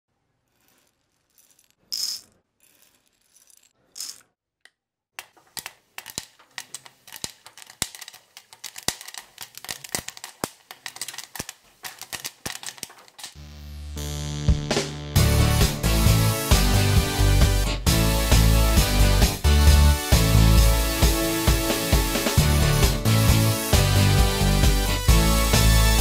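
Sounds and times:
popcorn popping: 5.2s - 13.4s
popcorn kernels rattling in glass bowl: 6.0s - 13.4s.

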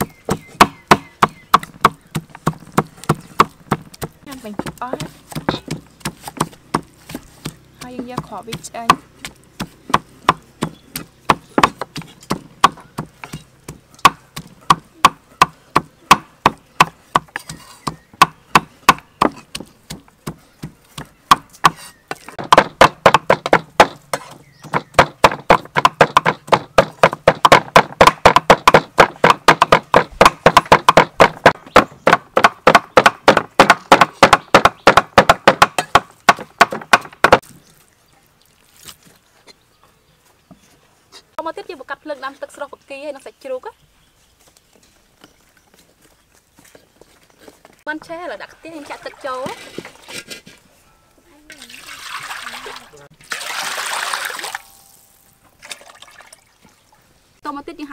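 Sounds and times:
knife chopping on wooden block: 0.3s - 37.4s.

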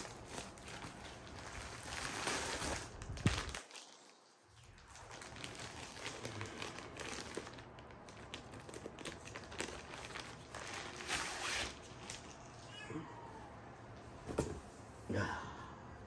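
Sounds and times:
packaging ripping: 0.0s - 12.4s
packaging crinkling and rustling: 0.0s - 12.6s.

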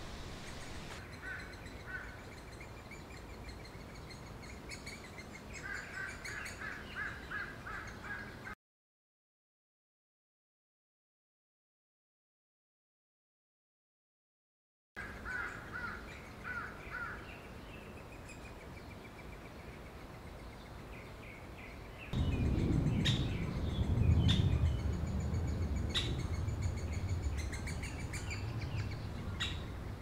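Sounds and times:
birds chirping: 0.0s - 8.6s, 15.0s - 30.0s
low rumble: 22.2s - 30.0s.

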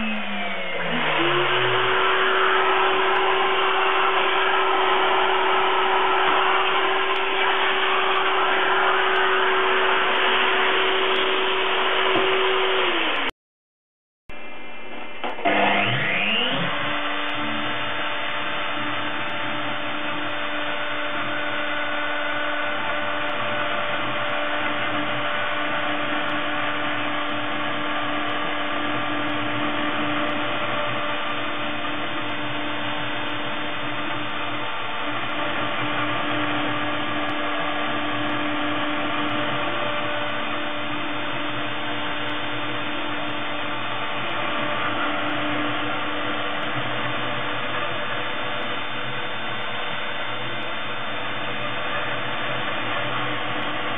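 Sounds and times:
milling spindle whine: 0.0s - 13.3s, 15.2s - 53.9s
vacuum cleaner running: 0.0s - 13.3s, 14.9s - 53.9s.

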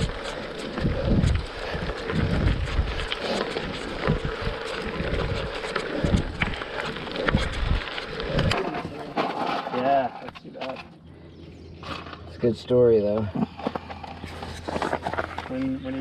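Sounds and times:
wind buffeting microphone: 0.0s - 9.0s
tyres crunching over gravel: 0.0s - 10.8s, 11.8s - 16.0s
bike clicks and rattles: 0.0s - 10.9s, 13.0s - 16.0s.

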